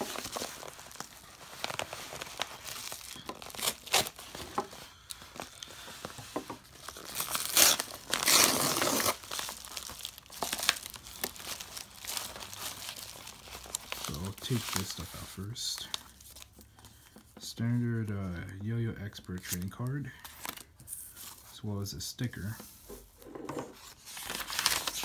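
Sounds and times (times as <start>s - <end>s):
padded envelope crinkling and tearing: 0.0s - 16.6s, 19.2s - 20.7s, 23.8s - 25.0s.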